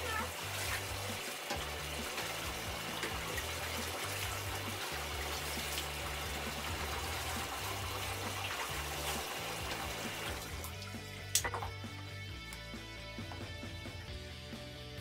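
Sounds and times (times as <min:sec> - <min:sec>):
water running in bathtub: 0:00.0 - 0:11.8
background music with bass: 0:00.0 - 0:15.0.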